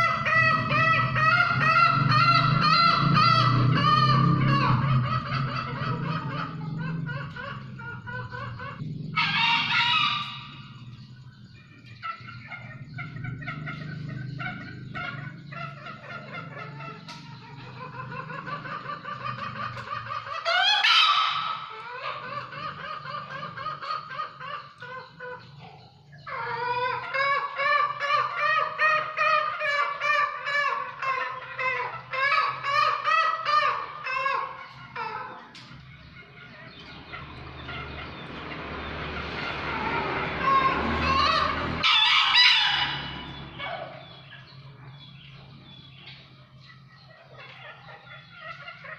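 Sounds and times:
rooster crowing: 9.1 - 10.7, 39.8 - 43.9.

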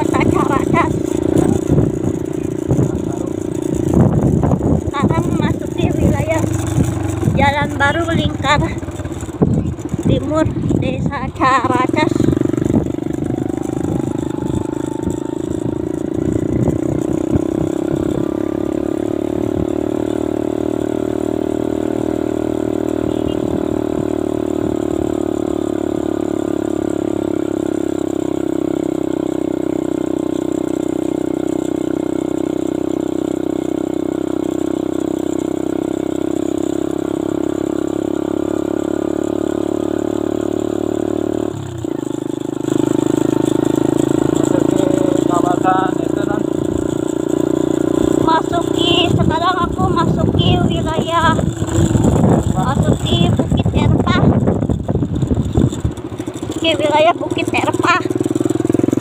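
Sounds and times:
rattling: 0.0 - 19.7, 41.7 - 59.0
road noise: 0.0 - 59.0
vehicle engine drone: 0.0 - 59.0.

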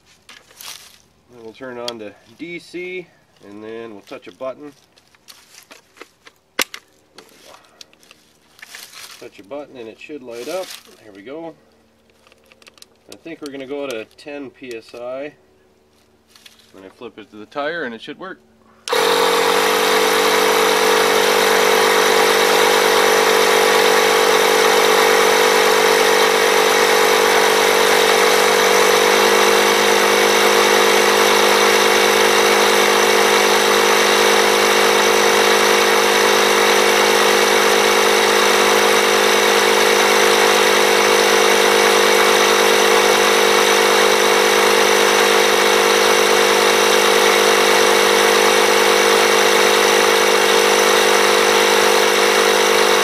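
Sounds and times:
air compressor running: 18.8 - 53.0.

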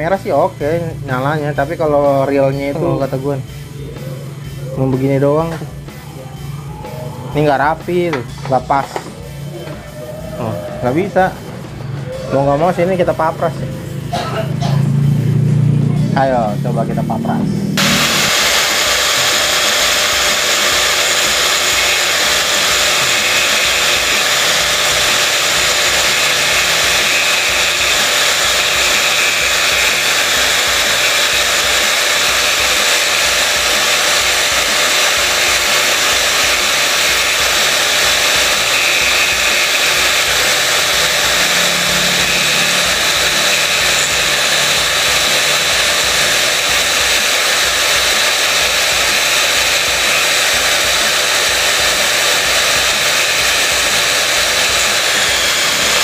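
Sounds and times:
angle grinder whining: 0.0 - 15.6, 17.6 - 56.0
disc grinding plastic: 17.8 - 56.0.

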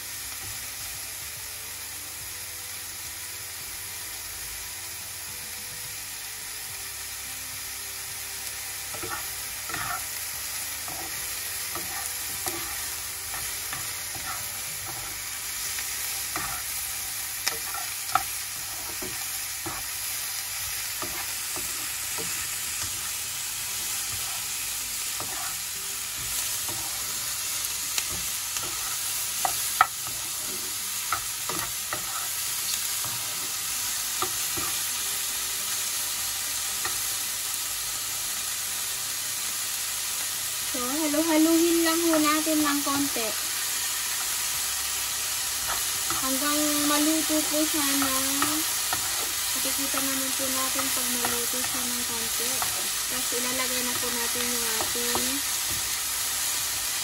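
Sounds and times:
mushrooms and onions sizzling: 0.0 - 57.0
spatula stirring and tapping pan: 17.4 - 19.9, 21.0 - 23.1, 28.0 - 32.3.

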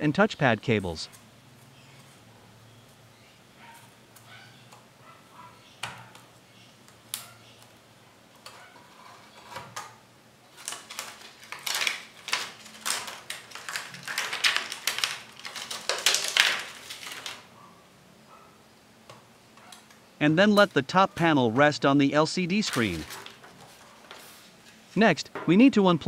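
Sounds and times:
plastic sheet crackling and rustling: 10.5 - 17.5, 22.6 - 25.0.

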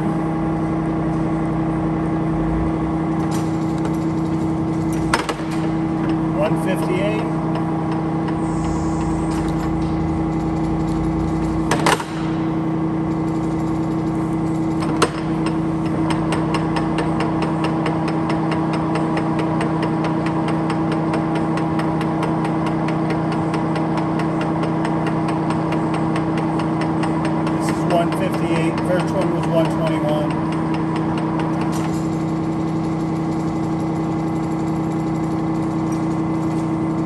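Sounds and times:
lathe gear hum: 0.0 - 37.0
fast regular ticking: 5.9 - 17.7.

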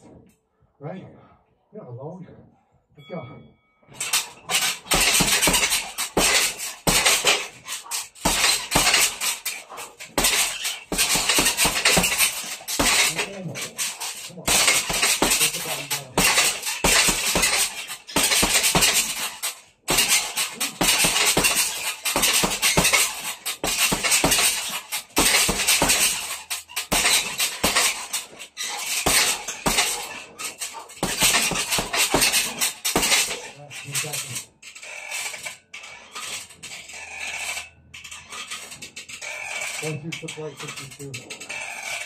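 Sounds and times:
metal hardware clattering and jingling: 3.8 - 42.0
punches landing on heavy bag: 4.2 - 13.3, 14.5 - 15.6, 16.2 - 19.3, 19.9 - 30.2, 30.9 - 33.4.

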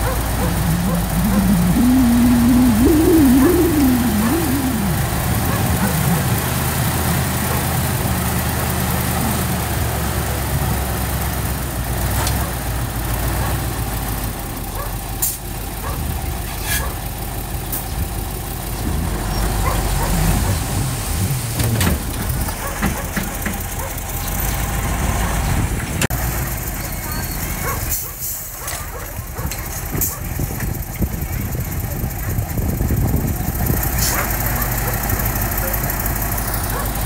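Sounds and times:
diesel engine running: 0.0 - 37.0
whine: 0.4 - 6.6.

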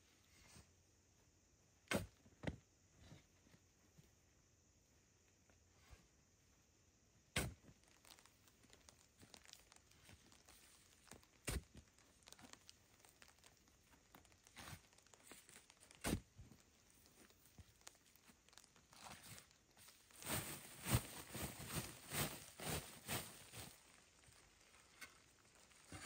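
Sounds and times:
crackling and rustling: 7.5 - 26.0.

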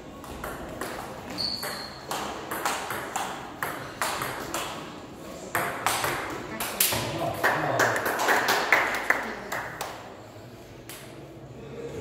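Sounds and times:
brief high squeak: 1.3 - 2.0.

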